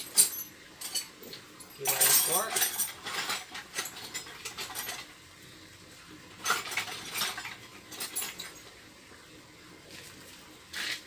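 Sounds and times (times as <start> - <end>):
metal hand tools clinking: 0.0 - 5.1, 6.4 - 8.7.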